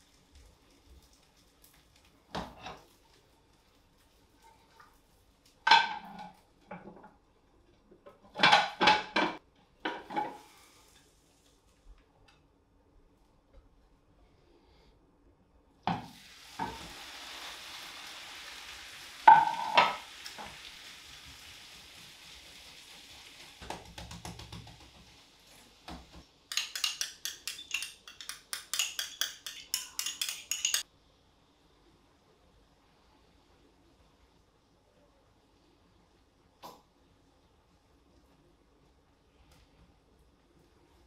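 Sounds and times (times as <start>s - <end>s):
omelette sizzling in a frying pan: 0.0s - 6.6s, 15.9s - 26.2s
frying pan clattering: 5.6s - 7.0s, 8.2s - 10.4s, 15.9s - 17.1s, 19.1s - 20.7s, 26.0s - 30.9s
spoon scraping in a pan: 26.5s - 30.9s.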